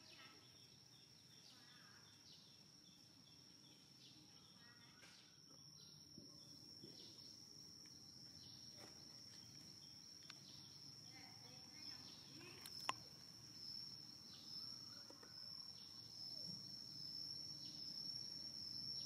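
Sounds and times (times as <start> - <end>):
insect drone: 0.0 - 19.0.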